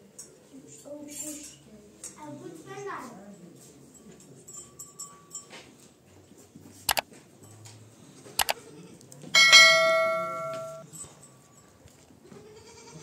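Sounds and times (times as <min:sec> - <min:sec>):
notification bell ding: 0:09.4 - 0:10.8.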